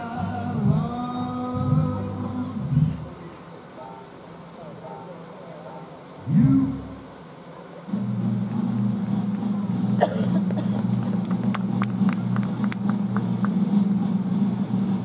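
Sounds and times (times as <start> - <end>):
low motor hum: 0.0 - 3.4, 6.2 - 7.2, 7.8 - 15.0.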